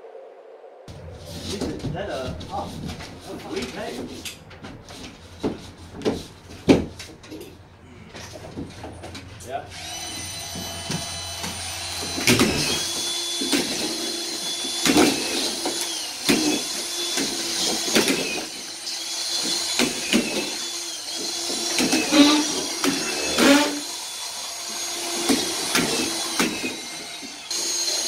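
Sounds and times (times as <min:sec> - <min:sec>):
screwdriver motor whining: 0:09.7 - 0:28.0.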